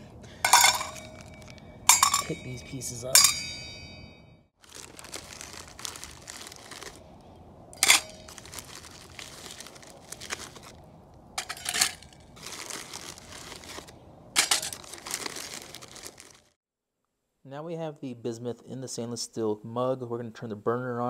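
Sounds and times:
metal pieces clinking in mug: 0.4 - 3.6, 7.8 - 8.7, 11.4 - 16.2
plastic bag crinkling: 4.6 - 7.1, 7.8 - 16.6.

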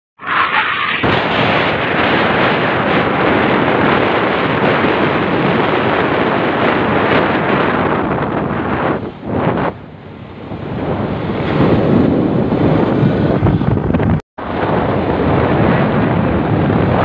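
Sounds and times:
wind buffeting microphone: 1.0 - 17.0.

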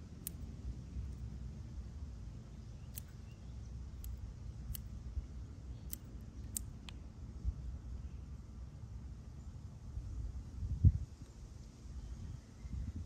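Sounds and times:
steady low rumble: 0.0 - 13.0
scissors snipping onion stalks: 0.2 - 1.2, 2.8 - 3.3, 4.0 - 5.0.

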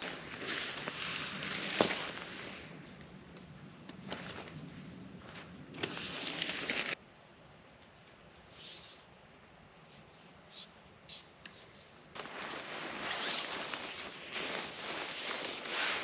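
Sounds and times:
loud steady rustling: 12.2 - 16.0.

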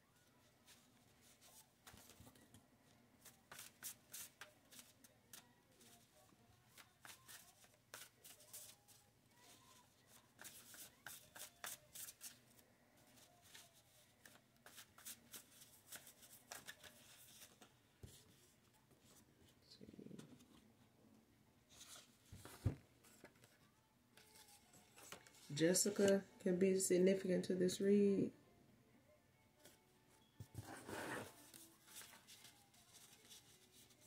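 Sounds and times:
shuffling cards by hand: 3.2 - 5.5, 10.1 - 12.4.

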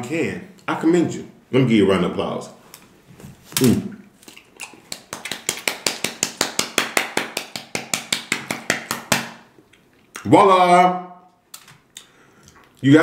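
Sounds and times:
person clapping hands: 4.9 - 9.4.

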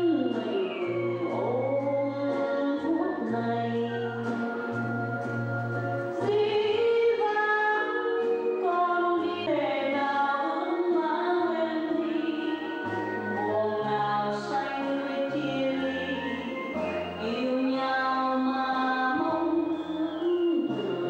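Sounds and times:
voices singing long notes: 0.0 - 21.0.

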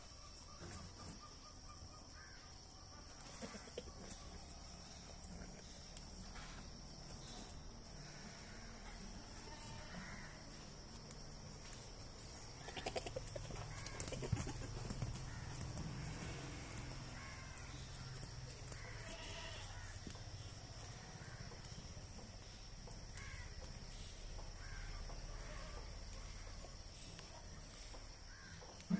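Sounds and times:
high insect hum: 0.0 - 28.9
crows cawing: 2.2 - 2.5, 9.6 - 10.4, 12.6 - 20.5, 21.2 - 21.5, 23.1 - 23.6, 24.6 - 25.8, 28.2 - 28.7.

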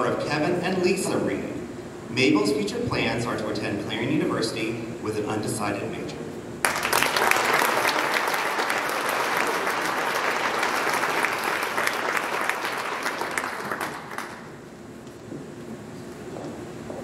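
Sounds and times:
audience applauding: 6.6 - 14.6.

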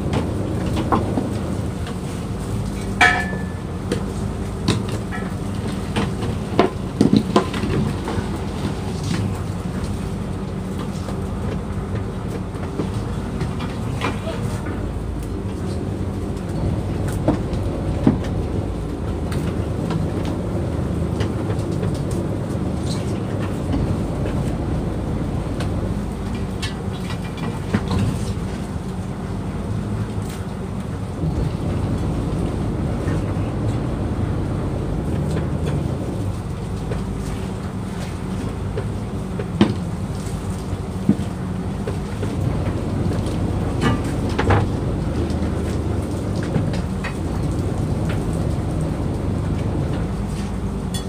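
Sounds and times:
boat engine humming: 0.0 - 51.0.

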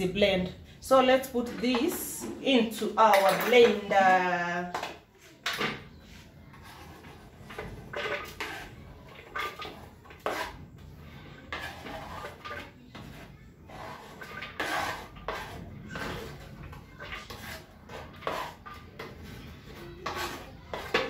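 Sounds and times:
knife scraping wooden board: 6.5 - 10.6, 11.5 - 19.0, 20.0 - 21.0.

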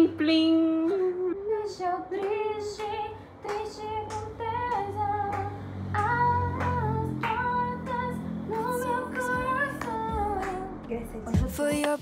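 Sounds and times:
pop song with female vocal: 0.0 - 12.0
bass line: 4.4 - 11.7.

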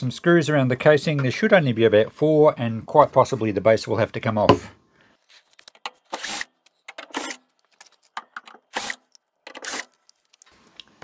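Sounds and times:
cordless drill running: 6.1 - 6.5, 7.2 - 7.4, 8.7 - 9.0, 9.6 - 9.9.

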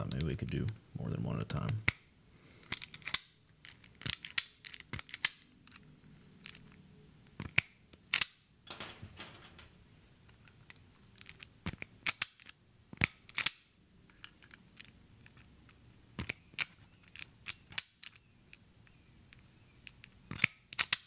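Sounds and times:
wire strippers snapping: 20.3 - 21.0.

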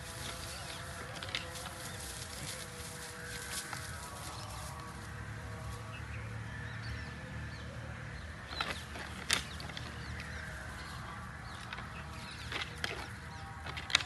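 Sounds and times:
antlers clacking together: 8.5 - 14.0.

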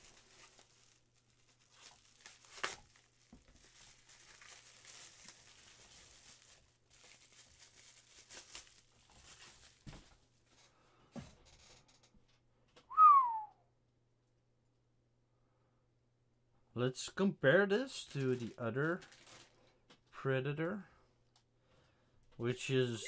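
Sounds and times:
bubble wrap crinkling: 0.0 - 10.7, 18.0 - 19.7.

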